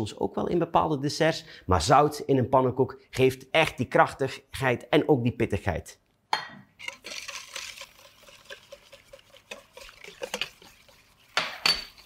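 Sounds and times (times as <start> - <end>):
whisk ticking against metal bowl: 6.9 - 12.0.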